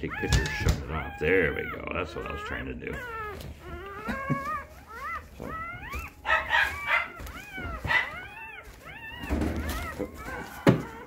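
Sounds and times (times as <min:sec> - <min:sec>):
dogs whining and squealing: 0:00.0 - 0:11.0.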